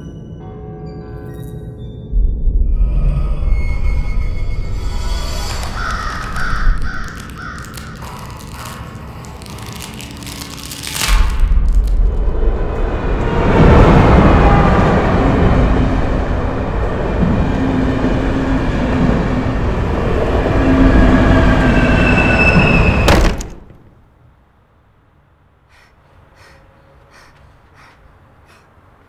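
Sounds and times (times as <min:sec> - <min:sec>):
electric train rumbling: 0:02.1 - 0:24.6.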